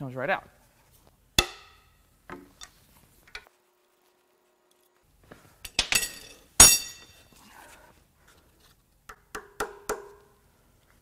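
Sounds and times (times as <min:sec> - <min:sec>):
steel tools clinking on metal: 0:05.6 - 0:07.3.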